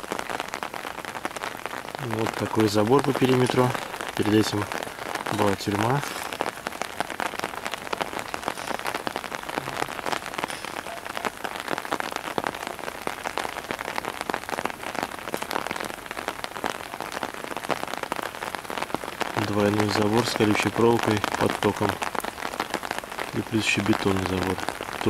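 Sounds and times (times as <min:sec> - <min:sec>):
steady rain falling: 0:00.0 - 0:25.0.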